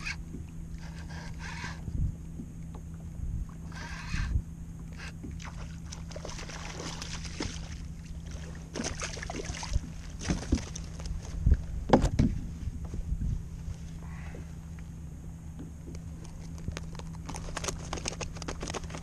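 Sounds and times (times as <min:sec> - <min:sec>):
steady low hum: 0:00.0 - 0:19.0
fish splashing at the surface: 0:05.4 - 0:10.7.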